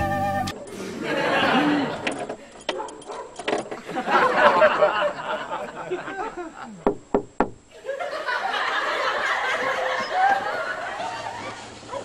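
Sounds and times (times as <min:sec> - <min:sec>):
knocks on a car: 0:06.9 - 0:07.6.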